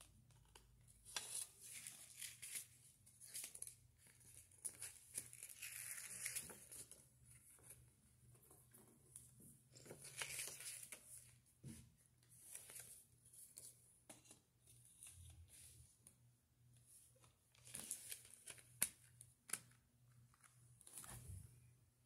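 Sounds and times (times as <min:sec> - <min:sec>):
paper pages rustling: 0:09.8 - 0:11.3, 0:12.4 - 0:15.6.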